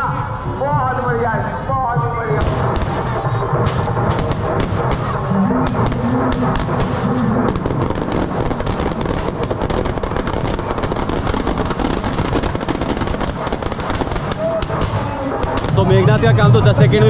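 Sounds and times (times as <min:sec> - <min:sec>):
crowd hubbub: 0:00.0 - 0:17.0
firecrackers popping and banging: 0:02.4 - 0:17.0.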